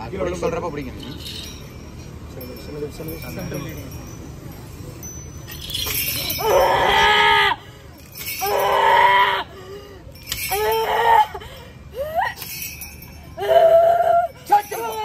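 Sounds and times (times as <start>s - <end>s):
woman screaming: 6.4s - 7.6s.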